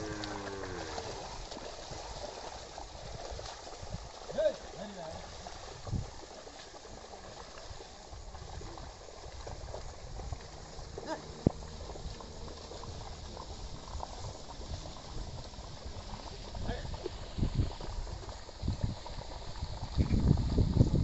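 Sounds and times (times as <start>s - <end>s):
plough splashing through mud: 0.0s - 3.8s.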